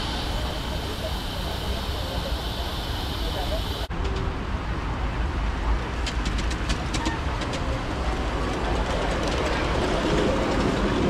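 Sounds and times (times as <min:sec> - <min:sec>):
steam locomotive rumble: 0:00.0 - 0:11.0.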